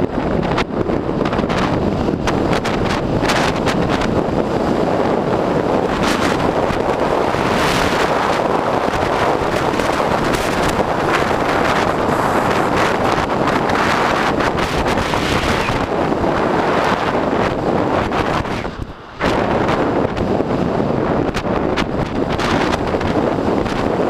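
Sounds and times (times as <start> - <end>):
wind rushing over microphone: 0.0 - 24.0.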